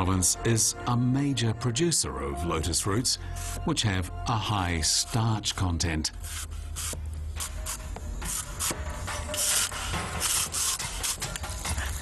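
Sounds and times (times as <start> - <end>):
rasping scraping strokes: 6.2 - 12.0.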